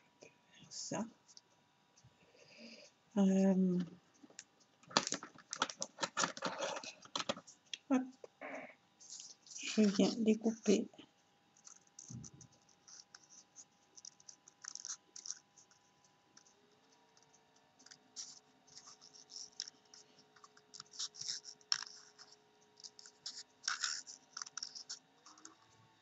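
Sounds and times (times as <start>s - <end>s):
faint steady hum: 0.0s - 26.0s
scissors snipping paper: 14.0s - 15.8s, 17.8s - 25.5s.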